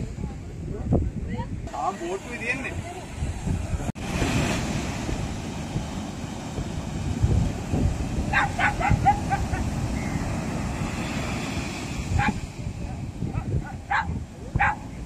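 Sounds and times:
surf washing up beach: 0:00.0 - 0:15.0
wind on microphone: 0:00.0 - 0:15.0
dog barking: 0:08.3 - 0:09.7, 0:12.2 - 0:12.4, 0:13.3 - 0:14.8.

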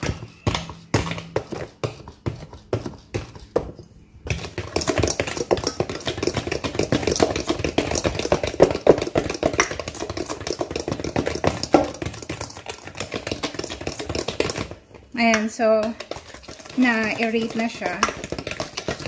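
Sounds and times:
whisk beating in metal bowl: 0:04.3 - 0:19.0.

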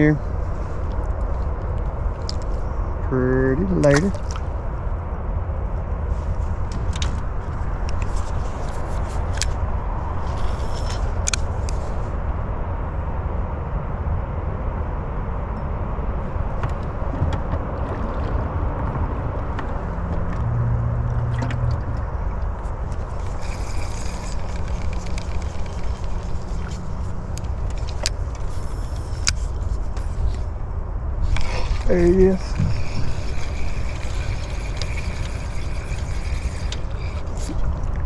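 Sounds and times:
wind buffeting microphone: 0:14.7 - 0:38.0.

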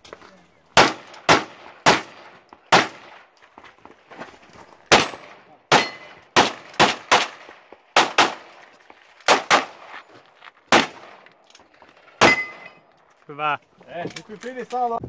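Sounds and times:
pistol shots: 0:00.8 - 0:03.3, 0:04.9 - 0:08.6, 0:09.3 - 0:10.0, 0:10.7 - 0:11.2, 0:12.2 - 0:12.7
steel targets ringing: 0:12.2 - 0:12.8.

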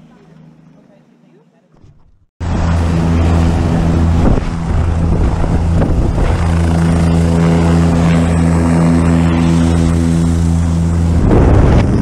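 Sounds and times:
helicopter rotor and turbine drone: 0:02.4 - 0:12.0.

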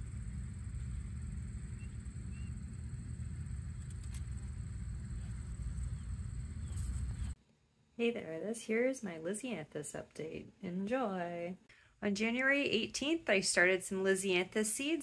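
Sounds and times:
steady low rumble: 0:00.0 - 0:07.4.

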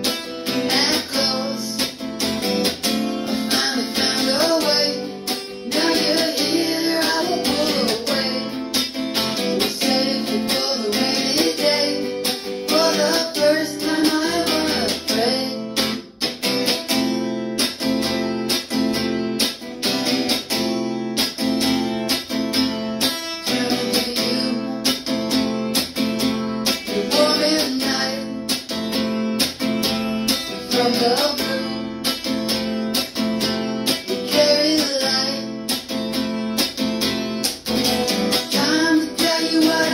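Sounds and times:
strummed guitar: 0:00.0 - 0:39.9
man singing: 0:00.4 - 0:02.3, 0:03.2 - 0:16.0, 0:23.3 - 0:25.4, 0:26.7 - 0:28.8, 0:30.5 - 0:32.4, 0:33.8 - 0:35.9, 0:37.8 - 0:39.9.

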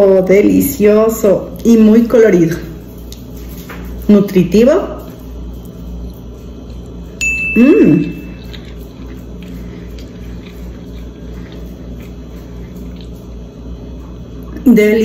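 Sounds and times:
high steady beep tone: 0:07.2 - 0:08.4
woman humming mmm: 0:07.6 - 0:08.4.

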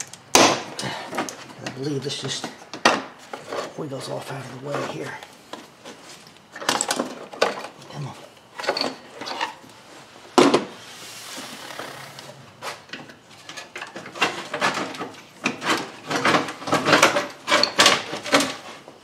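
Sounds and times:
parts clicking and rattling: 0:04.7 - 0:09.8, 0:12.7 - 0:18.9.

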